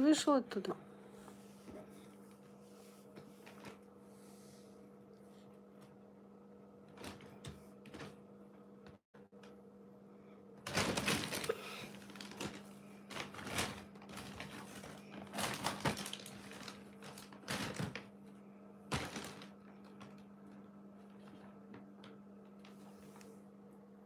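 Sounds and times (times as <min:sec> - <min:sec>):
plastic bag rustling: 0:10.6 - 0:18.2, 0:18.8 - 0:23.2.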